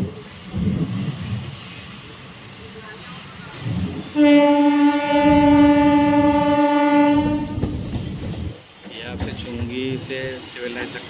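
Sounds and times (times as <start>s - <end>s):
moving train rumble: 0.0s - 11.0s
train horn: 4.1s - 7.8s.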